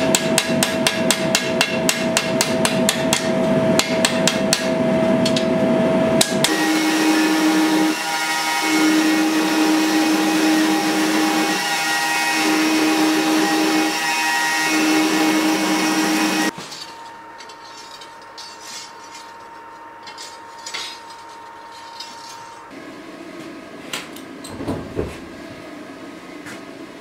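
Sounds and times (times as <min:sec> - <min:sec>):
belt grinder grinding steel: 0:06.4 - 0:22.7.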